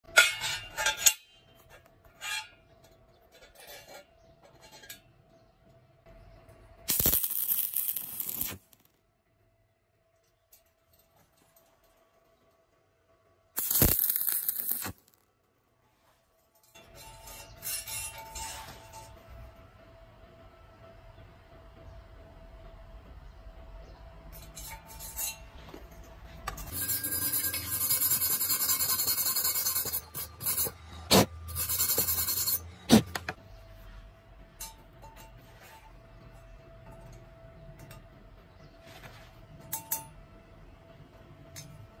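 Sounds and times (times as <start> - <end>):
wire brush scrubbing steel: 6.9 - 8.6, 13.6 - 15.1, 26.7 - 33.1
welding arc crackling: 6.9 - 9.0, 13.6 - 15.2.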